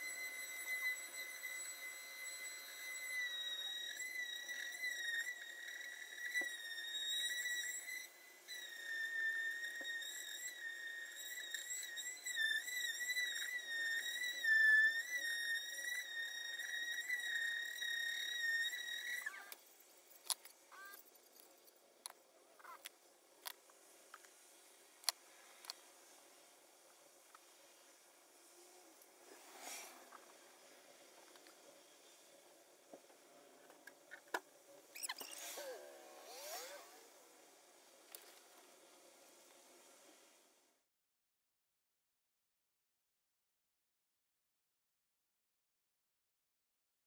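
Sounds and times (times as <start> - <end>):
woodworking tool squealing: 0.0 - 19.6, 20.2 - 21.2, 34.0 - 37.2.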